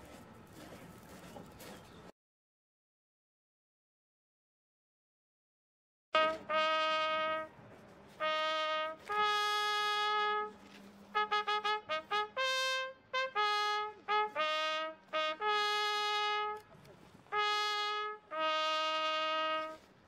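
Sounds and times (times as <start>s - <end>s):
solo trumpet melody: 6.2s - 20.0s.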